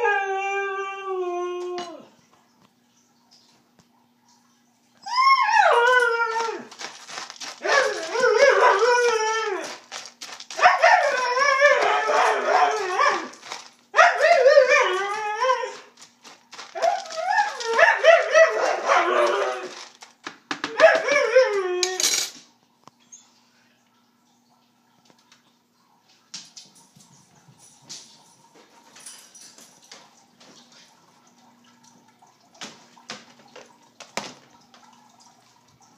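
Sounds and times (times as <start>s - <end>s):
dog howling: 0.0s - 2.1s, 5.0s - 16.0s, 16.6s - 19.9s, 20.7s - 22.2s.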